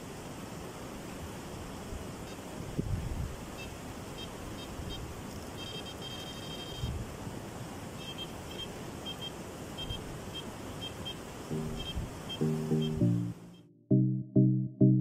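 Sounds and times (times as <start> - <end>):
steady outdoor hiss: 0.0 - 13.7
electronic bite alarm beeping: 11.5 - 13.6.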